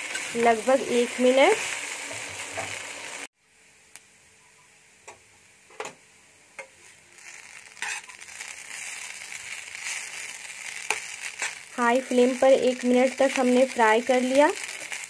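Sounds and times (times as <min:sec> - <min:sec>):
noodles sizzling in a pan: 0:00.0 - 0:03.3, 0:06.4 - 0:15.0.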